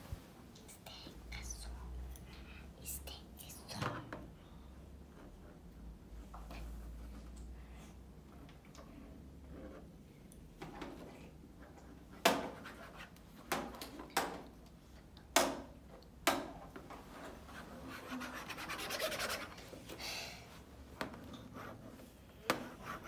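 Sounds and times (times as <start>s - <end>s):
stylus scraping drawing board: 17.2s - 19.7s, 21.4s - 23.0s.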